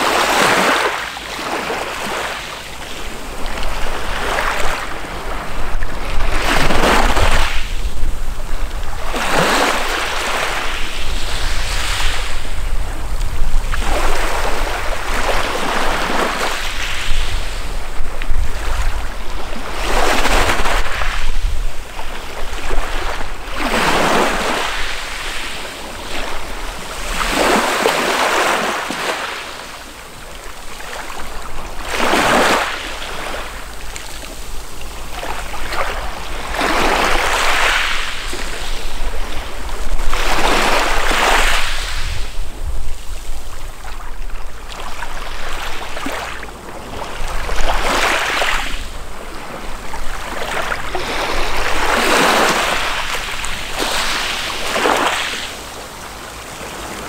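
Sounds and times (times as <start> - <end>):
waves breaking on pebble shore: 0.0 - 7.7, 8.7 - 17.7, 18.3 - 46.4, 47.0 - 55.7.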